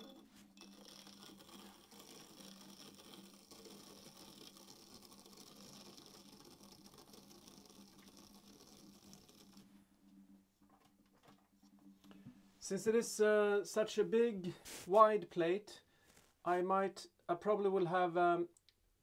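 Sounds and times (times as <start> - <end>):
potter's wheel motor hum: 0.0 - 9.7
trimming tool scraping clay: 0.0 - 9.7.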